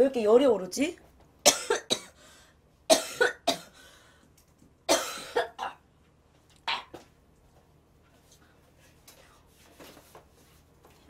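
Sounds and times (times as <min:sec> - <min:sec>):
woman coughing: 0:01.5 - 0:02.2, 0:02.9 - 0:03.8, 0:04.9 - 0:05.8.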